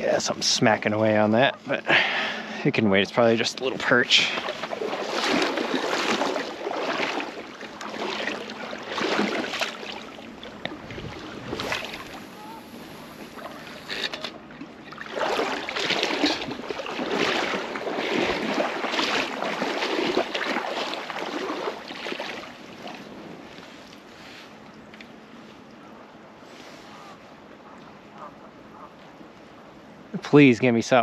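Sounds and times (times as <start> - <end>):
small waves lapping: 0.0 - 30.5
wind on microphone: 10.6 - 13.9.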